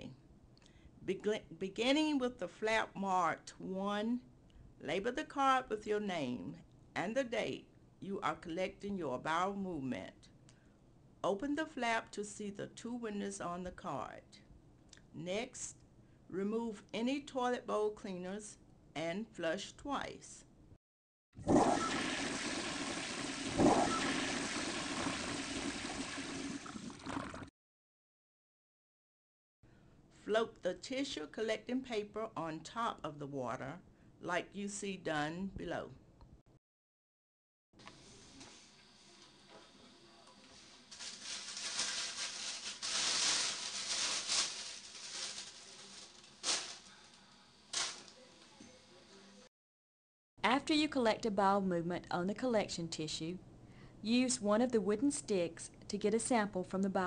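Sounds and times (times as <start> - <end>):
toilet flushing: 21.4 - 27.5
paper rustling and crinkling: 40.4 - 48.2.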